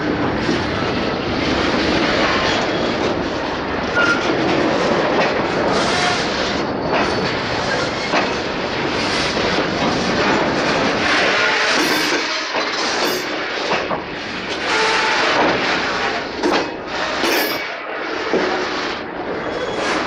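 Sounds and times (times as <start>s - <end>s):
train wagons rumbling and rattling: 0.0s - 20.0s
wheels clattering over rails: 9.1s - 14.7s, 15.3s - 18.4s
loud metal clanks: 11.7s - 13.8s, 16.4s - 17.7s.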